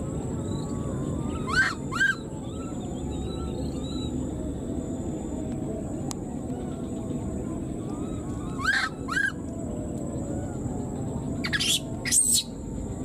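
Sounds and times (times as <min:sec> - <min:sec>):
baby monkey high-pitched calls: 0:00.5 - 0:04.2, 0:07.9 - 0:09.4, 0:11.4 - 0:12.6.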